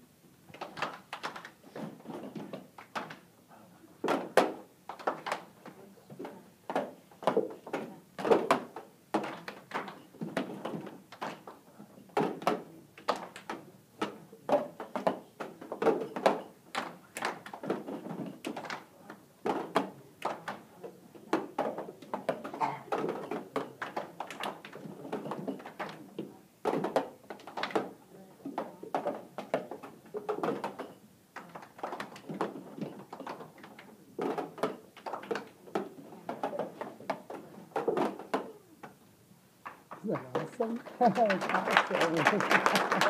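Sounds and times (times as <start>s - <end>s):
plastic cups knocked on cardboard: 12.2s - 20.7s, 21.3s - 39.0s
hand claps: 39.6s - 43.0s.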